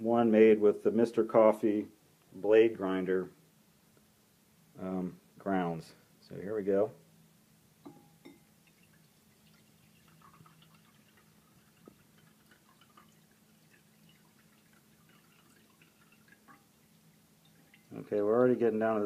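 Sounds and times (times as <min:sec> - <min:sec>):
low steady hum: 0:00.0 - 0:19.0
light ceramic clinks: 0:07.8 - 0:08.5
coffee trickling into a bowl: 0:07.9 - 0:19.0.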